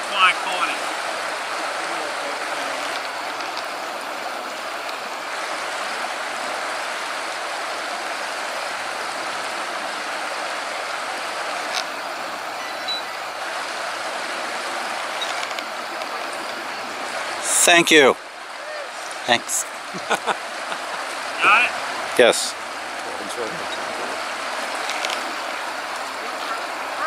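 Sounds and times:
water rushing over stream riffle: 0.0s - 27.0s.

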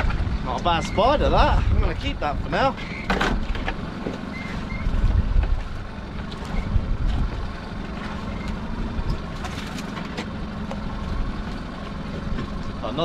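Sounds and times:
wind on microphone: 0.0s - 3.6s, 4.6s - 7.6s
boat engine idling: 0.0s - 13.0s.

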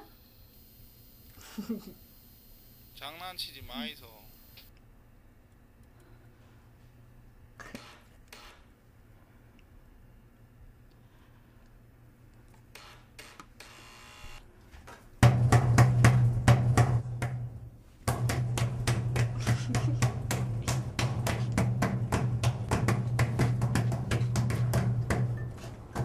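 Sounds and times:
rapid drumming: 15.2s - 17.1s, 18.1s - 26.0s.

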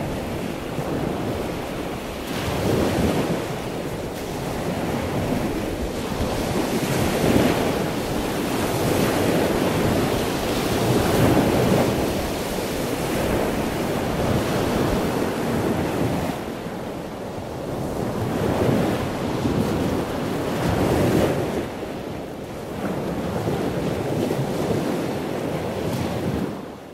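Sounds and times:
ocean surf breaking on beach: 0.0s - 26.9s
wind buffeting microphone: 0.0s - 26.9s.

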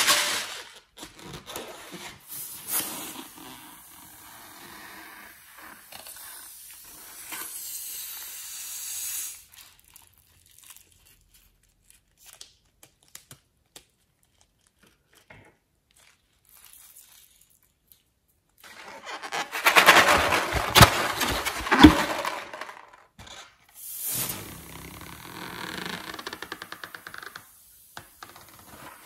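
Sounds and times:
rubber balloon rustling: 18.7s - 23.4s.

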